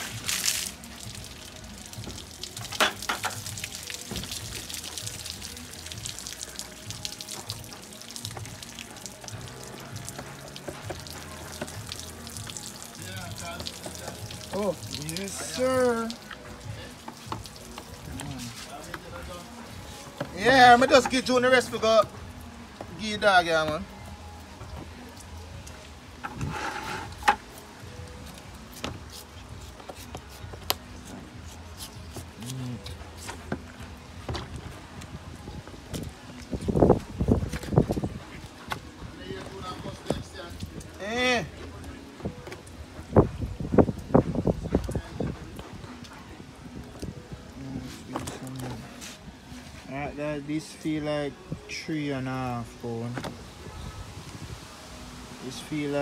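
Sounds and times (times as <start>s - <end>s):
water dripping and trickling: 0.0s - 56.0s
meat being cut and handled: 28.6s - 33.8s.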